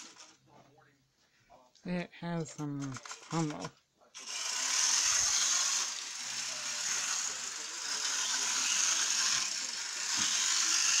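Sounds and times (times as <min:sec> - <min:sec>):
model train motor whirring: 0:04.2 - 0:11.0.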